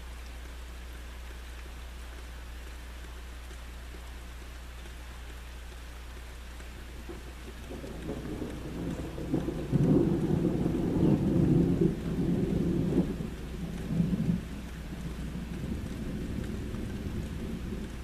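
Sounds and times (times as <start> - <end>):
steady rain: 0.0 - 18.0
thunder rumbling: 7.1 - 18.0.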